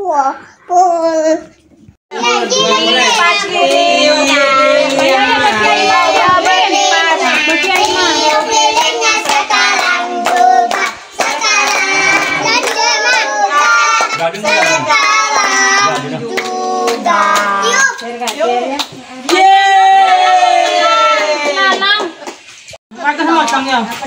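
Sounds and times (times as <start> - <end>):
children and women singing: 2.1 - 21.8
hands clapping: 3.1 - 19.5.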